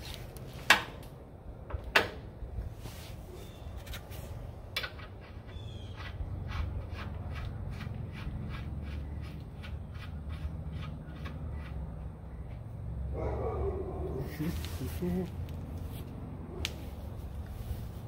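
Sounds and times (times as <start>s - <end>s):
short squeak: 5.5s - 6.1s.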